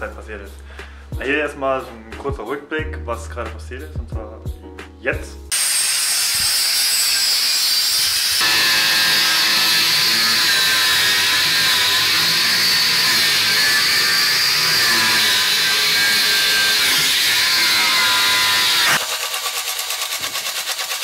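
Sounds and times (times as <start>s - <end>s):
angle grinder cutting steel: 5.5s - 21.0s.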